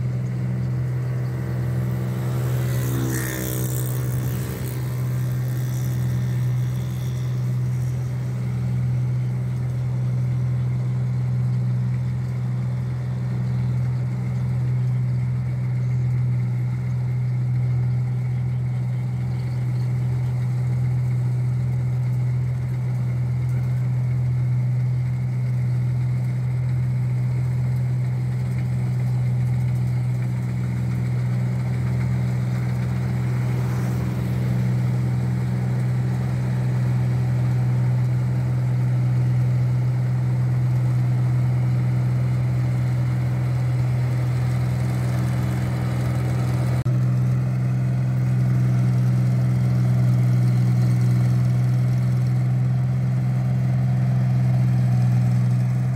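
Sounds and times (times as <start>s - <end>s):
combine harvester running: 0.0s - 55.9s.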